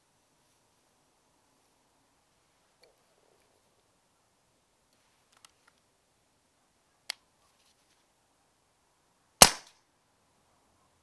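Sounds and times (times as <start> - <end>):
faint clicks: 4.9 - 5.9
air rifle shot: 9.4 - 9.7.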